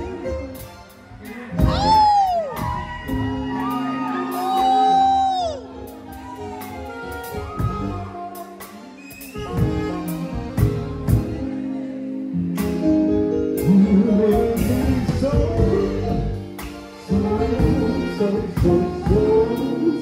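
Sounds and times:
live band playing: 0.0 - 20.0
man singing into microphone: 13.6 - 16.4, 17.1 - 20.0.

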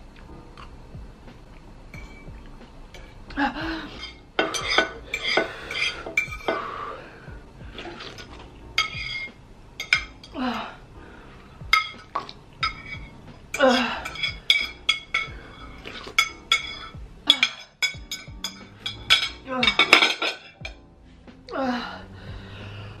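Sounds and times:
fork scraping a ceramic plate: 4.0 - 6.6, 7.8 - 10.0.

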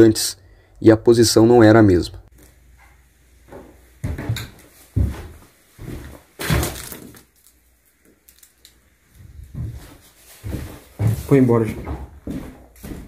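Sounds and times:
footsteps on wooden floorboards: 2.7 - 6.8, 9.1 - 13.0.

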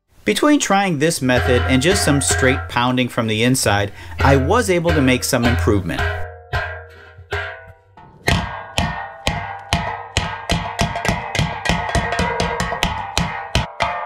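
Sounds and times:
hammer pounding on steel: 1.3 - 14.0.

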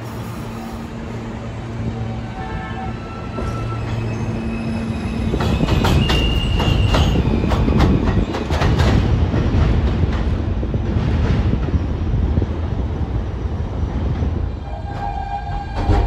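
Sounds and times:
subway train running: 0.0 - 16.0
wheel squeal: 2.9 - 7.8
wheels clacking over rail joints: 5.3 - 12.0.

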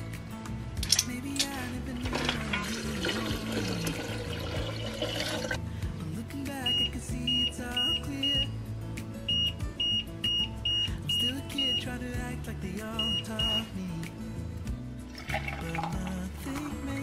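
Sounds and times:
background music: 0.0 - 17.0
short high beeps: 9.3 - 11.8.

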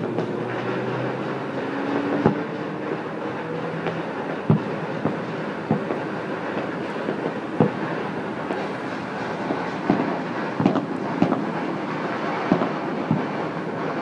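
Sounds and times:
distant fireworks crackling: 0.0 - 14.0
firework shell booms: 0.0 - 14.0.

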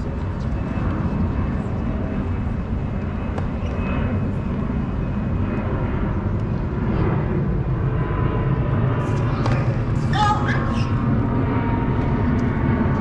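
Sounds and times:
low outdoor rumble: 0.0 - 13.0
tennis ball bouncing and hit: 9.2 - 9.8.

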